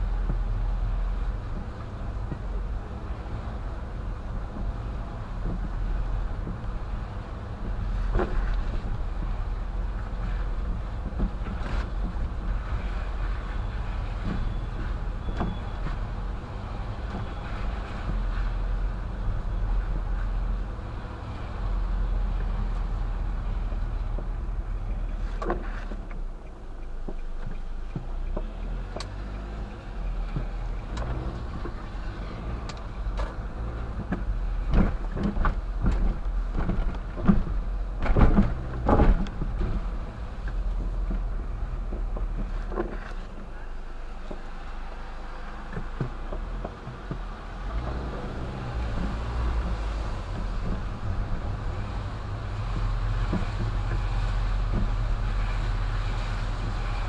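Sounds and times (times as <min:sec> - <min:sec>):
car engine and tyre hum: 0:00.0 - 0:57.0
knocks and thumps: 0:30.2 - 0:43.2.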